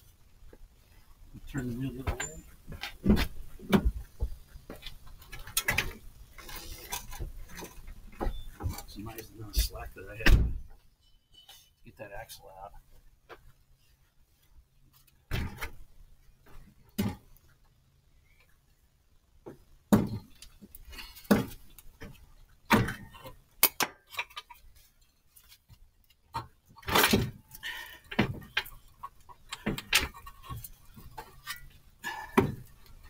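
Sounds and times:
small metal clinks: 2.2 - 2.9.

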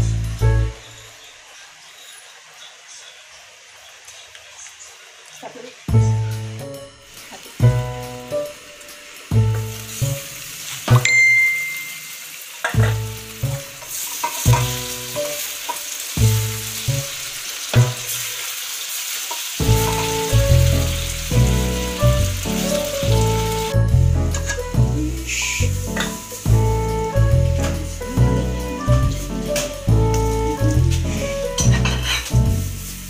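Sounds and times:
background music with bass: 0.0 - 0.9, 5.9 - 7.0, 7.6 - 8.4, 19.6 - 33.0
meat sizzling in sauce: 0.0 - 33.0.

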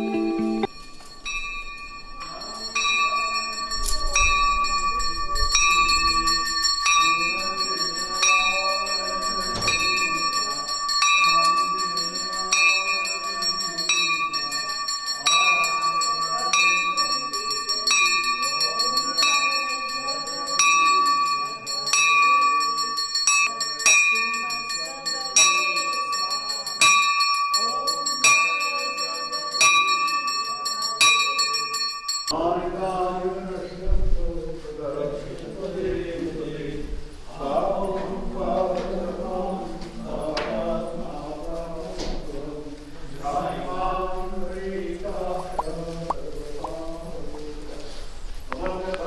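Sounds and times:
temple bell ringing: 0.0 - 32.4
group of voices singing: 2.2 - 26.9, 34.9 - 47.8, 48.5 - 49.0.

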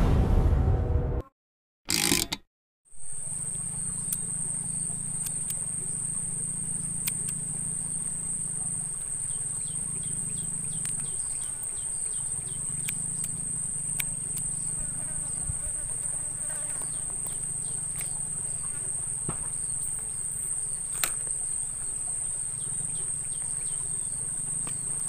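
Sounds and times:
swish effect: 0.0 - 1.3
insects shrilling: 3.0 - 25.0.

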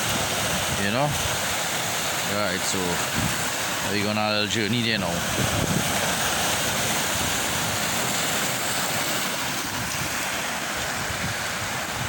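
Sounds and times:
wind buffeting microphone: 0.0 - 1.6, 2.9 - 3.6, 5.0 - 12.0
water washing on rocky shore: 0.0 - 12.0.

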